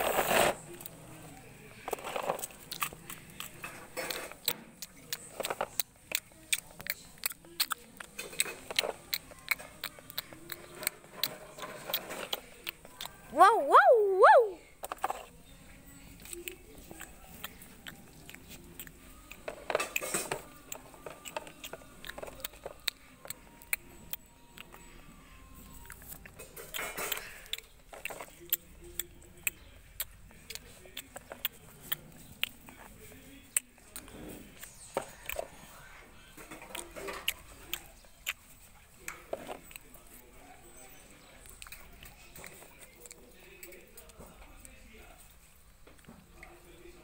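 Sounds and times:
plastic toys dragged on concrete: 0.0s - 0.6s.

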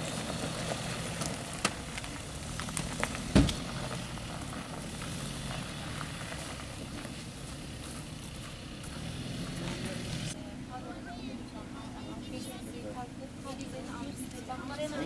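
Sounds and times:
van engine humming: 0.0s - 15.0s
heavy thump: 3.3s - 3.6s.

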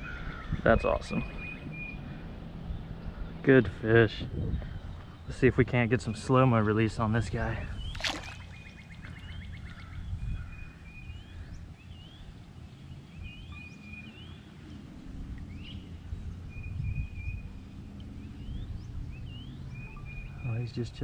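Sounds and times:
wind noise on microphone: 4.2s - 5.3s, 7.3s - 11.7s, 15.1s - 19.4s.

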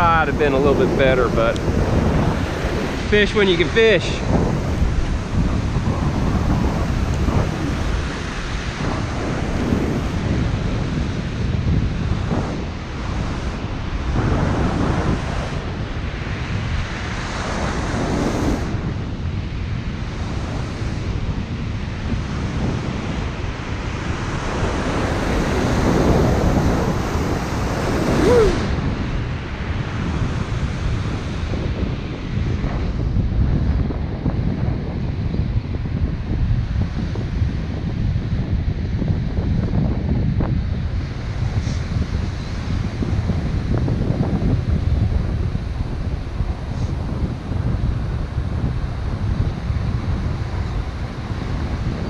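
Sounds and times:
ocean surf breaking: 0.0s - 33.1s
wind buffeting microphone: 0.0s - 52.0s.

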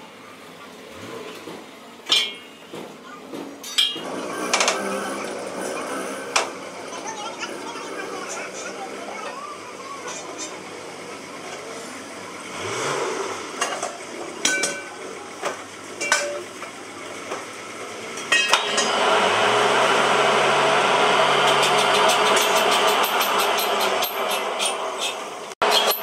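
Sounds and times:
metal wheel rim clanking: 1.0s - 7.0s, 13.5s - 19.1s
lathe motor humming: 16.6s - 26.0s.

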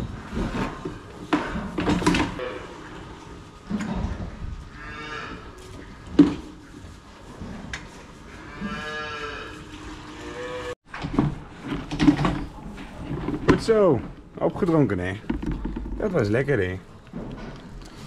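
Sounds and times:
calves mooing: 4.7s - 5.6s, 8.3s - 10.8s.

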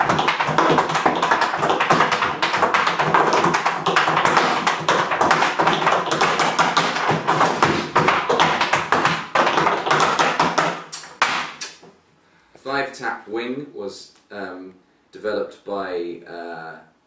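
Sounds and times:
tap shoes on wooden board: 0.0s - 11.9s.

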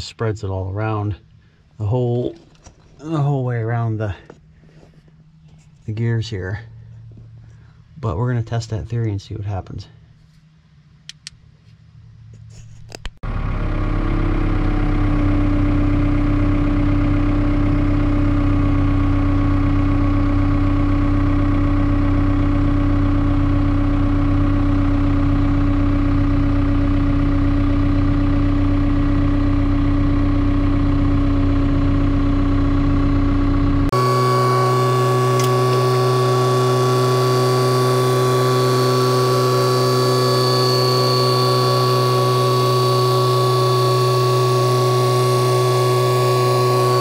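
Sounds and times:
excavator engine and hydraulics: 12.4s - 47.0s
steady hum: 31.4s - 47.0s.

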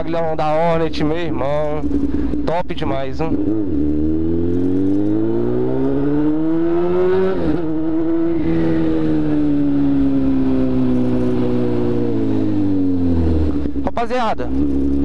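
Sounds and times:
motorcycle engine revving: 0.0s - 15.0s.

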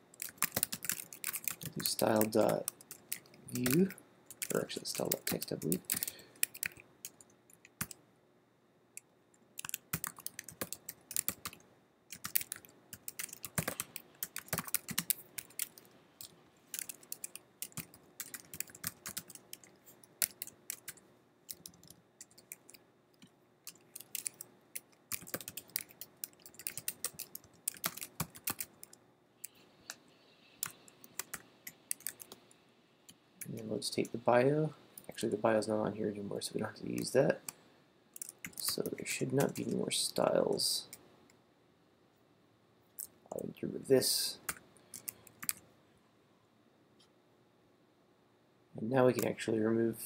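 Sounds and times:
typing on computer keyboard: 0.1s - 8.0s, 9.6s - 22.8s, 23.7s - 29.6s, 30.6s - 32.4s, 38.2s - 39.8s, 44.5s - 45.6s.

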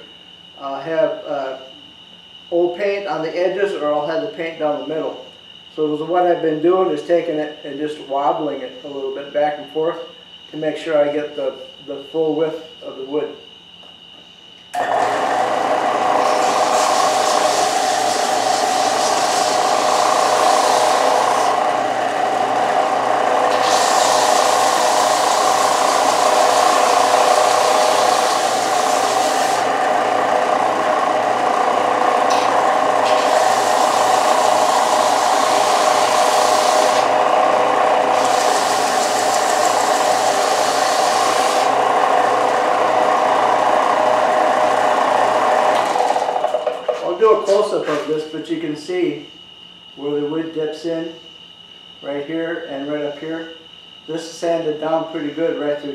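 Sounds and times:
sander motor hum: 14.8s - 48.1s
sanding belt grinding wood: 14.8s - 48.2s.

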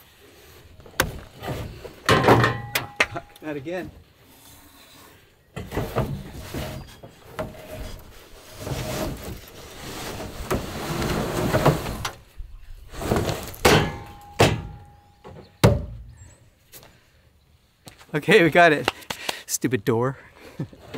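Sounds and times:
metal bangs and knocks: 1.0s - 3.4s, 13.1s - 16.1s
unit scraping across metal: 4.8s - 12.2s.

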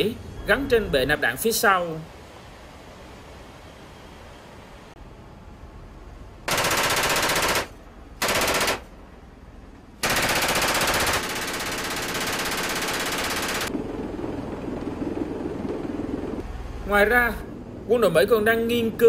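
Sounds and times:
aircraft engine and rotor noise: 0.0s - 19.0s
machine gun bursts: 6.5s - 8.9s, 10.0s - 13.7s.

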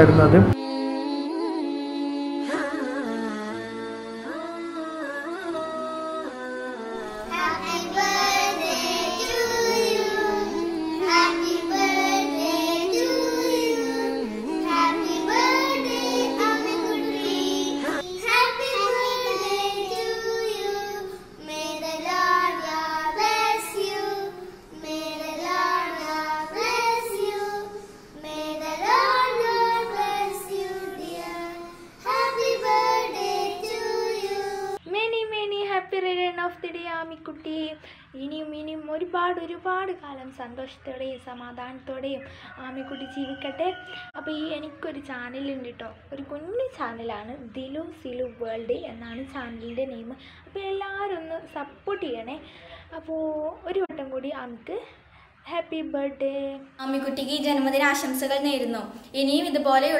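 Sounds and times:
background music: 2.4s - 27.8s
girls singing together: 7.0s - 34.8s.

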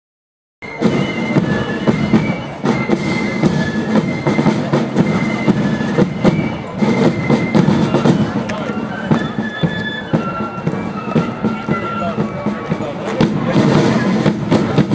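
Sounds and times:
flute band playing a march: 0.6s - 14.9s
side drums and bass drum: 10.6s - 14.9s.

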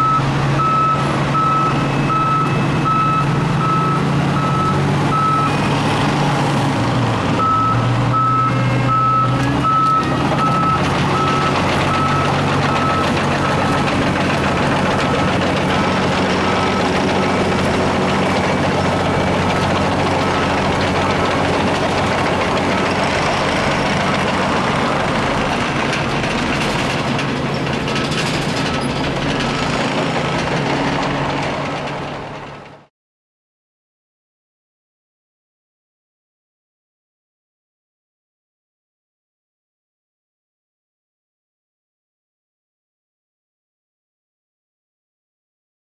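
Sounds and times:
reversing alarm beeping: 0.0s - 5.9s, 7.4s - 25.3s
heavy machinery grinding: 0.0s - 32.8s
diesel engine running: 0.0s - 32.9s.

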